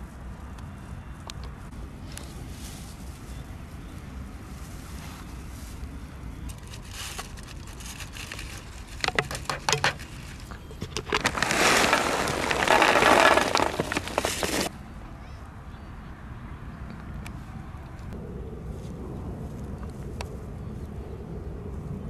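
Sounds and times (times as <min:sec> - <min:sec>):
crinkly foil rustling: 0:06.5 - 0:14.7.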